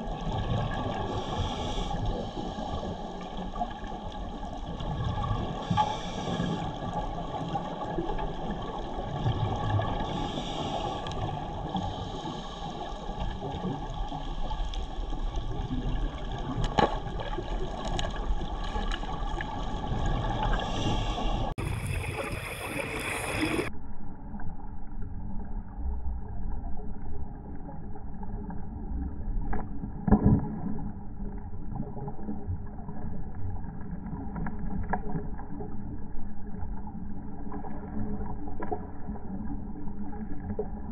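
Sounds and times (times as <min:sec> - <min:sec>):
muffled underwater rushing: 0:00.0 - 0:23.7.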